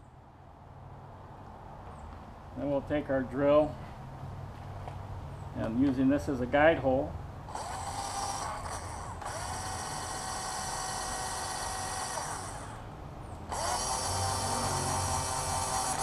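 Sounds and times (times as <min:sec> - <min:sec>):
cordless drill whining: 0:07.5 - 0:12.9, 0:13.5 - 0:16.0.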